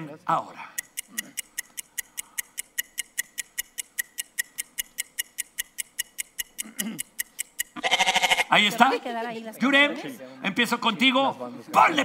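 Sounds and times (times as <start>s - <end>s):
countdown timer ticking: 0.7s - 8.2s.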